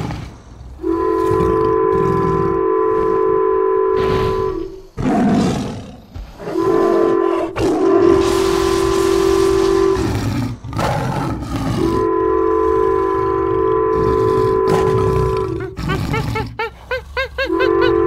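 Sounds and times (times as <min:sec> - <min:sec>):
animal roars: 0:00.0 - 0:03.2, 0:04.3 - 0:16.6
train horn chord: 0:00.8 - 0:04.8, 0:06.4 - 0:10.2, 0:11.8 - 0:15.4, 0:17.5 - 0:18.0.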